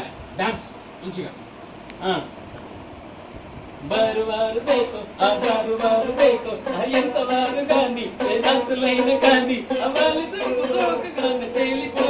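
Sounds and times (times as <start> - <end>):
song with singing voice: 3.8 - 12.0.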